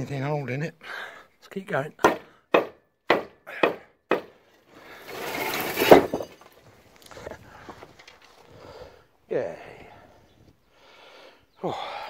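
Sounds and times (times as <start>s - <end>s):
concrete post crashing down: 5.0s - 6.6s.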